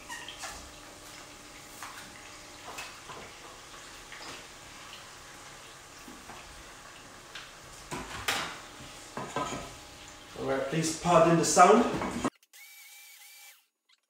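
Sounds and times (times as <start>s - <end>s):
meat sizzling in oil: 0.0s - 10.7s.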